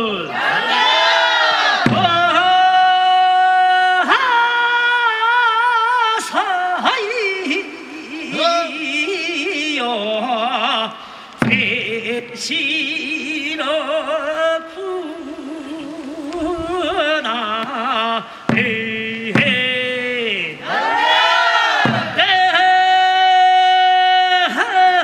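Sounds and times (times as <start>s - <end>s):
sharp drum strokes: 1.8s - 2.4s, 18.4s - 20.1s, 21.7s - 22.4s
person singing work song: 1.9s - 21.0s, 21.8s - 25.0s.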